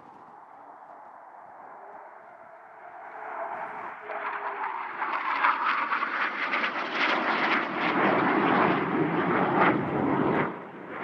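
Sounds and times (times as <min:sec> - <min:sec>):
jet engine passing low: 0:00.0 - 0:11.0.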